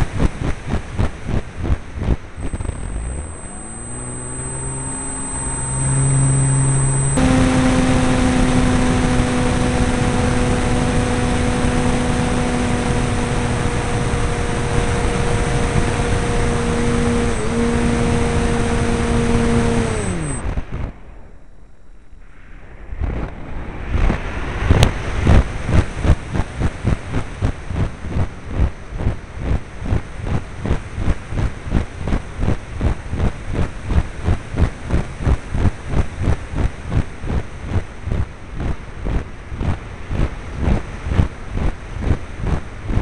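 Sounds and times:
model plane motor whine: 0:02.3 - 0:20.8
wind rush: 0:22.2 - 0:26.9.

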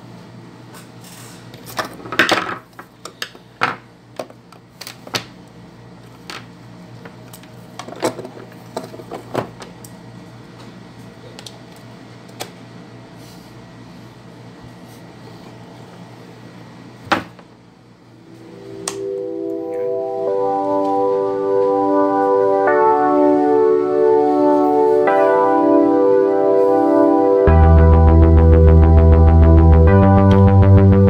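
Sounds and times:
low steady hum: 0:17.6 - 0:31.0.

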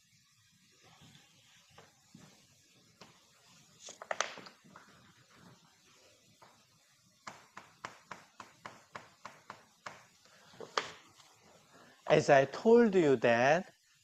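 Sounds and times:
chalk tapping on chalkboard: 0:07.2 - 0:11.0.

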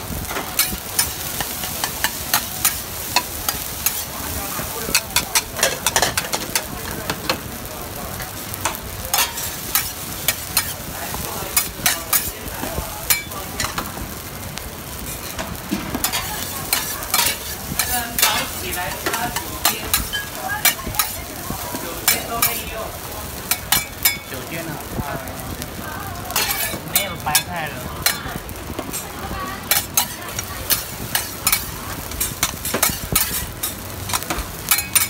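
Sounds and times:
rice sizzling on a griddle: 0:00.0 - 0:35.0
metal spatula scraping and clacking: 0:00.3 - 0:04.1, 0:04.9 - 0:07.4, 0:08.6 - 0:10.8, 0:15.1 - 0:21.2, 0:26.4 - 0:28.2, 0:29.7 - 0:35.0.

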